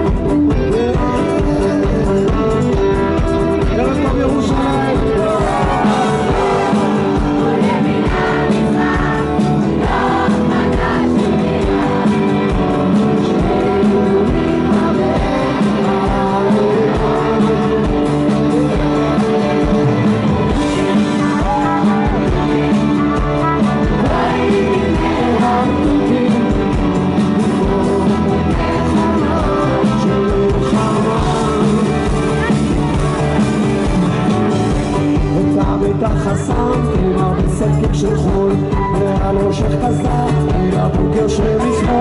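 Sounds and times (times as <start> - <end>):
drums: 0.0 - 42.0
electric guitars: 0.0 - 42.0
man singing: 0.0 - 42.0.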